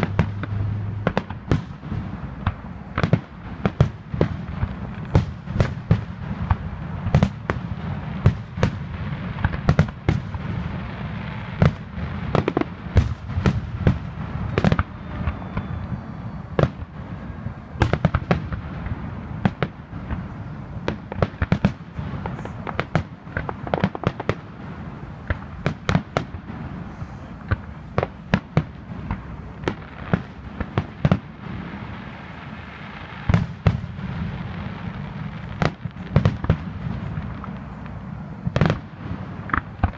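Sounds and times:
fireworks bursting with sharp bangs: 0.0s - 39.9s.

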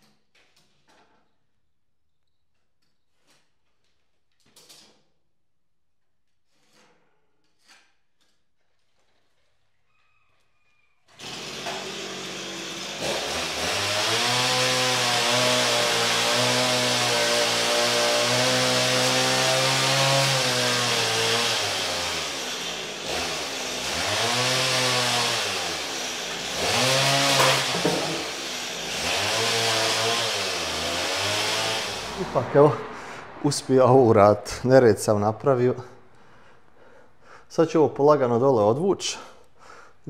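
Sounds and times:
chainsaw cutting wood: 11.1s - 33.4s.

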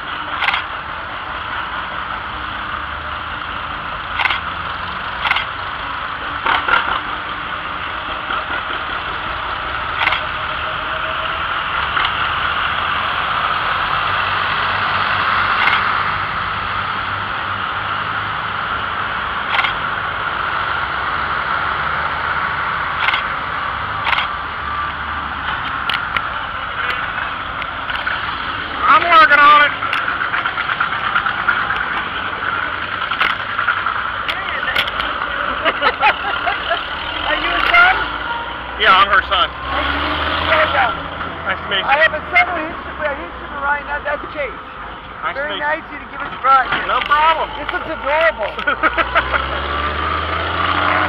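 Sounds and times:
tractor engines driving past: 0.0s - 51.0s
sharp clicks: 4.1s - 4.5s, 5.2s - 5.6s, 15.5s - 16.0s, 19.4s - 19.8s, 23.0s - 23.4s, 24.0s - 27.0s, 32.9s - 35.3s.

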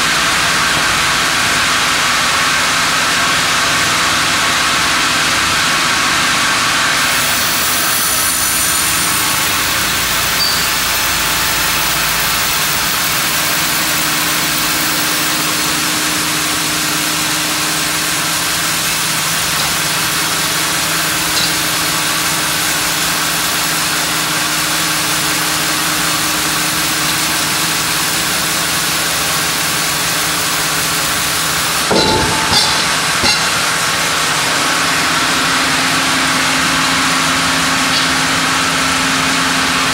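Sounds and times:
band sawmill cutting log: 6.4s - 32.0s.

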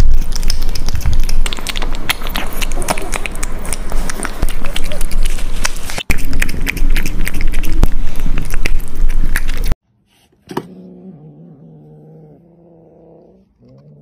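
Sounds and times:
cat chewing and lip-smacking: 0.0s - 9.8s
cat growling yowl: 10.6s - 14.0s.

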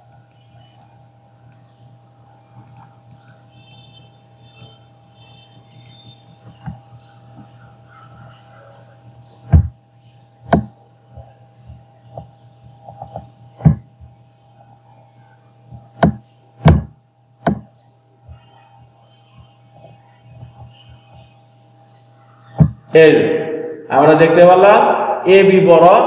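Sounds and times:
low electrical hum: 0.0s - 26.0s
computer mouse clicking: 2.6s - 3.8s, 5.6s - 7.5s.

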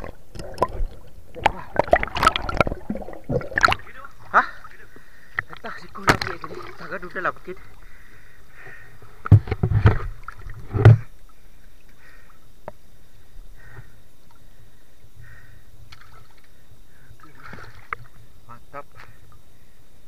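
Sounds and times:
knocks and water thumps: 0.0s - 4.6s, 5.3s - 7.7s, 8.6s - 11.1s
soft underwater water sounds: 0.0s - 20.0s.

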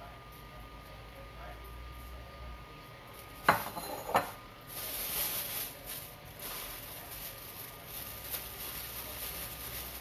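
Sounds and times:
plastic bag rustling: 4.6s - 10.0s.

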